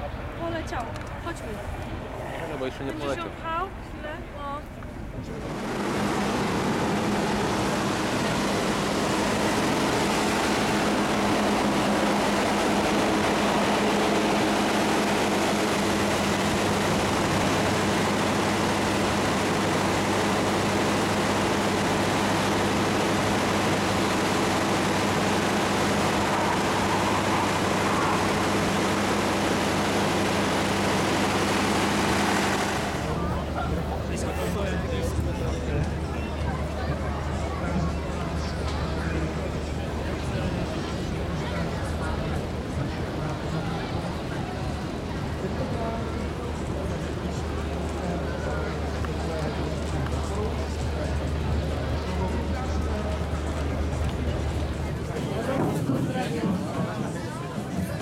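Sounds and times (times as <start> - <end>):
low hum: 5.0 - 34.2
even hum: 5.1 - 55.9
loud engine drone: 5.1 - 58.0.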